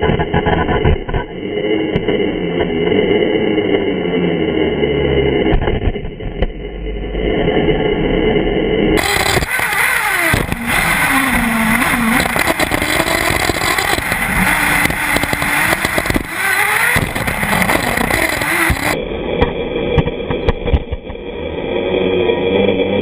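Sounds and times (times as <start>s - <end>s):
nitro engine revving: 0.0s - 23.0s
chassis knocks: 9.0s - 21.2s.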